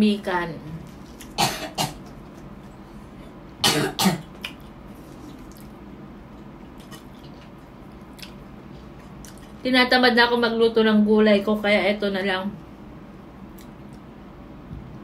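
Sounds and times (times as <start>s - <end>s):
woman coughing: 1.4s - 2.0s, 3.6s - 4.3s.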